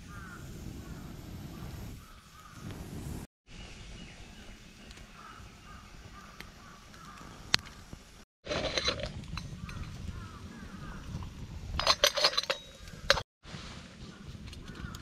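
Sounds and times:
birds calling faintly: 0.0 - 2.8, 3.5 - 8.2, 9.5 - 13.2
campfire crackling: 0.0 - 3.3
metal pot lid clinking: 11.8 - 13.2.

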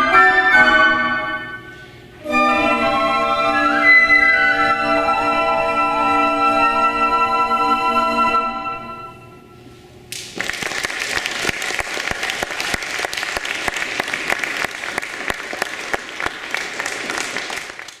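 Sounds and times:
audience applauding: 10.2 - 18.0.

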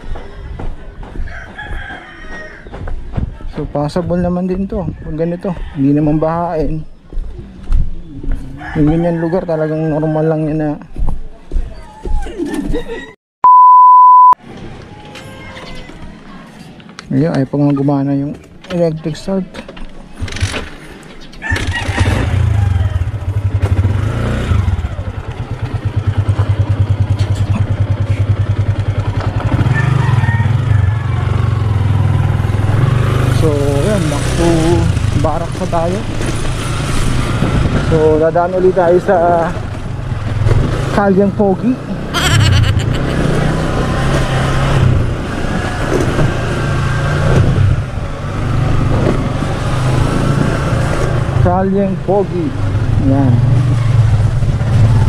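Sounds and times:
motorcycle engine running: 22.0 - 36.6.

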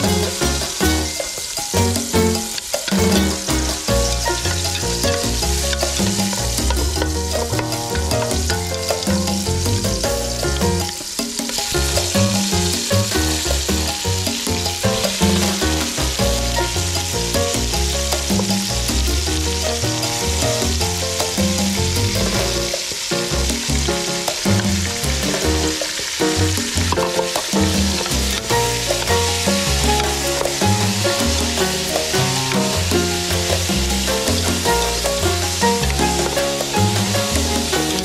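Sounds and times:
background music with bass line: 0.0 - 38.0
pork sizzling in hot oil: 0.0 - 38.0
chopsticks stirring meat: 2.1 - 10.0, 26.8 - 38.0.

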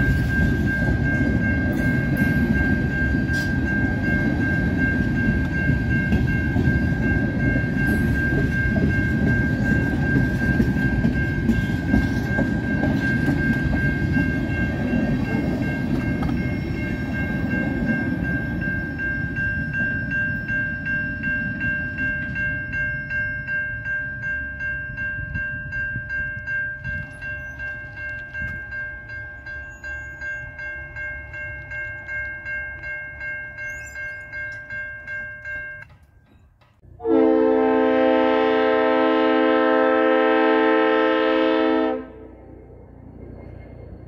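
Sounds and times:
freight train rumble: 0.0 - 44.0
railway crossing bell ringing: 0.0 - 44.0
locomotive air horn chord: 36.9 - 42.5.

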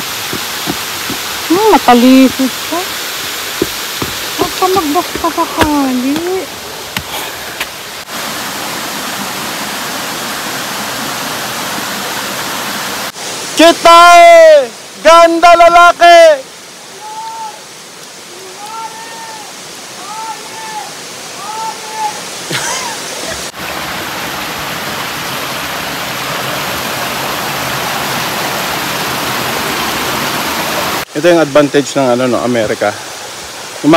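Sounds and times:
waterfall rushing: 0.0 - 33.9.

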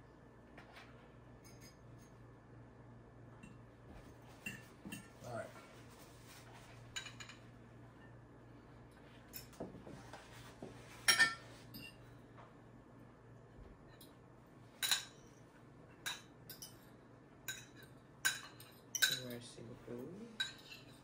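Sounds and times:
cutlery clinking on plates: 6.9 - 8.2, 9.2 - 10.0, 11.0 - 12.1, 14.8 - 15.3, 15.9 - 19.4, 20.4 - 21.0.

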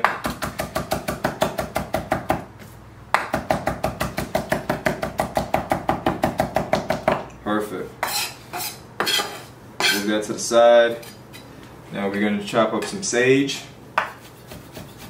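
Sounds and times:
knife chopping on wooden board: 0.0 - 2.4, 3.1 - 7.2, 14.0 - 15.0.

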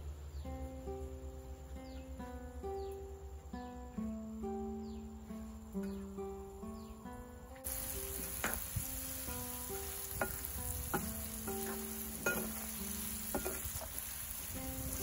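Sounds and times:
deep-frying sizzle: 7.6 - 15.0.

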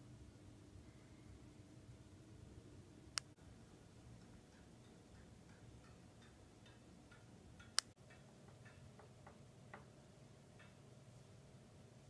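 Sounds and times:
faint regular ticking: 3.1 - 11.2.

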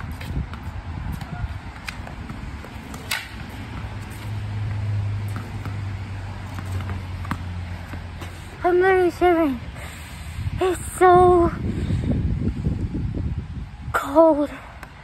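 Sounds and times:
tennis ball hitting wall and ground: 0.0 - 9.5.

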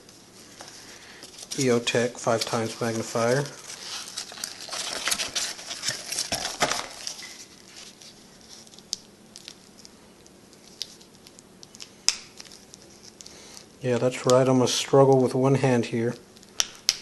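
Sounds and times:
packaging rustling and crinkling: 0.4 - 13.7.

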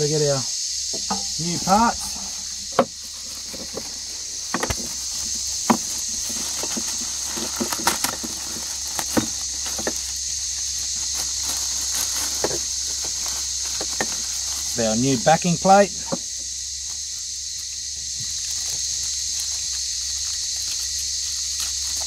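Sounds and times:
insects droning: 0.0 - 22.0
plastic bags crinkling: 3.2 - 14.8.

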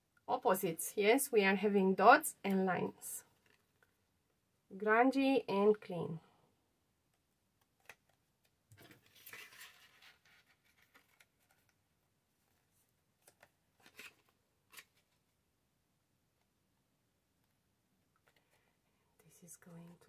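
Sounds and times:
scratchy paper rustle: 8.8 - 11.8, 12.5 - 15.2.

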